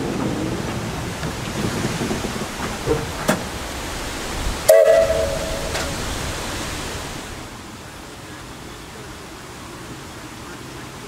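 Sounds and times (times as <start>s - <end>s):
steady rushing noise: 0.0s - 11.0s
steam locomotive whistle: 4.6s - 6.2s.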